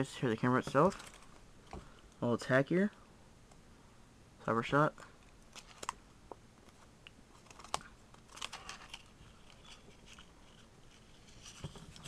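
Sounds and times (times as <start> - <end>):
paper rustling: 6.6 - 12.0.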